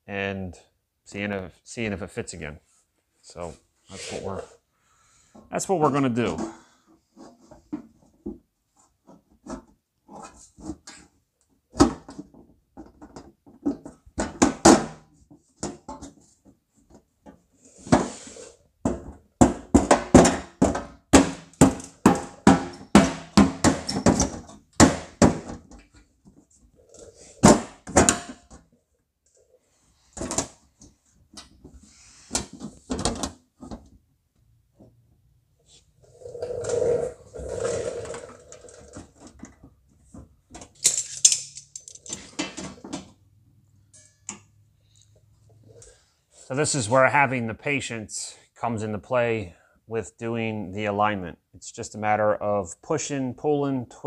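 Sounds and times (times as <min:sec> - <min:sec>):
sheet metal knocks and clunks: 0:18.8 - 0:25.8.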